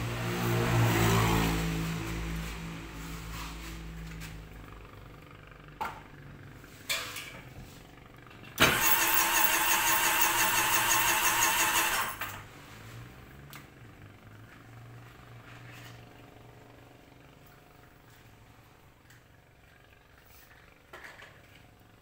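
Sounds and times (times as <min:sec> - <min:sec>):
watercraft engine cranking: 0:08.6 - 0:12.2.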